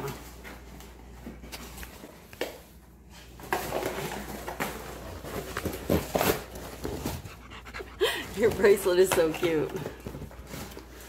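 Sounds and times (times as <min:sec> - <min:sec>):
dog chewing cardboard: 0:04.3 - 0:07.9.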